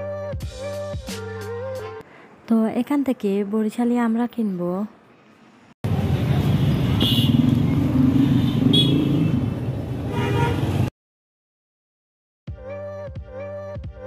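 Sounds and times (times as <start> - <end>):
music: 0.0 - 2.0, 12.5 - 14.0
street traffic engines: 1.2 - 10.9
car horn toots: 7.0 - 7.4, 8.3 - 9.4, 10.1 - 10.8.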